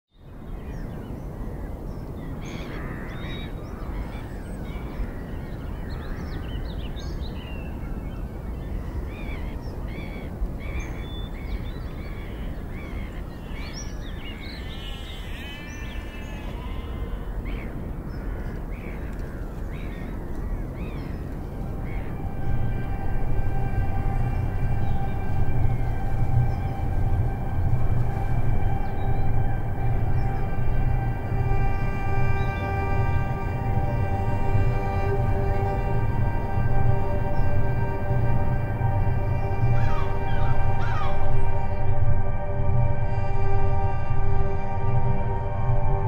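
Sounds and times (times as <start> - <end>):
wind: 0.1 - 46.0
birds chirping and squawking: 0.7 - 42.1
drawn-out bird call: 8.6 - 41.9.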